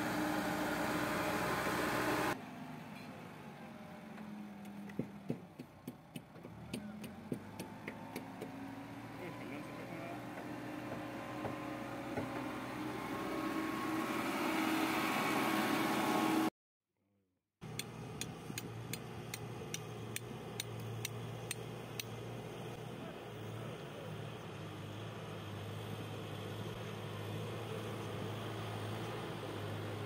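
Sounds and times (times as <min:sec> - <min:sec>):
backhoe loader diesel engine: 0:00.0 - 0:16.5, 0:17.6 - 0:30.0
regular sharp clicks: 0:17.7 - 0:22.2.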